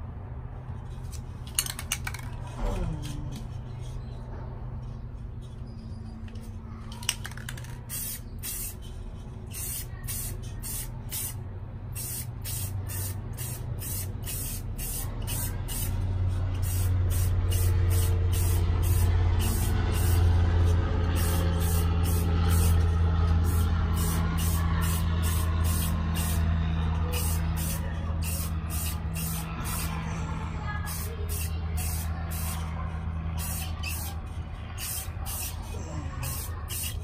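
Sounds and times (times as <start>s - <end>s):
low steady hum: 0.0s - 36.7s
spray paint can hissing: 7.0s - 30.0s, 30.8s - 37.0s.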